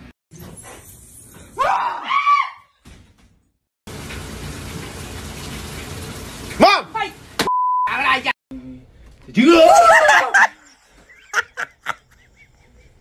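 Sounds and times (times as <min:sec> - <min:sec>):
person screaming: 0:01.6 - 0:02.6, 0:09.4 - 0:10.4
washing machine filling with water: 0:03.9 - 0:07.4.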